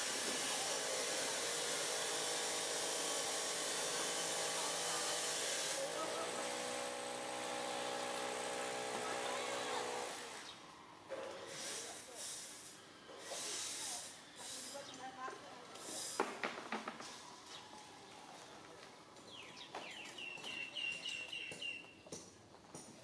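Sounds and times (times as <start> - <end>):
hiss: 0.0 - 6.0, 11.4 - 15.0, 15.7 - 16.6.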